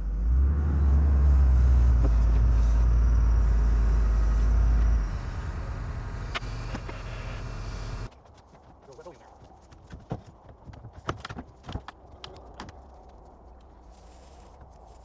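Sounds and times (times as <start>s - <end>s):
heavy engine rumbling: 0.0s - 8.1s.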